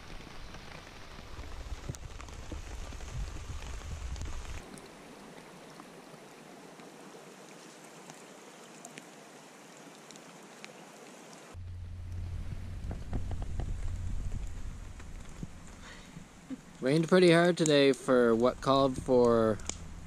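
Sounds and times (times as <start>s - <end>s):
close raindrops ticking: 0.0s - 20.0s
rain falling on river and trees: 0.0s - 20.0s
low rumble: 11.6s - 16.8s, 18.5s - 20.0s.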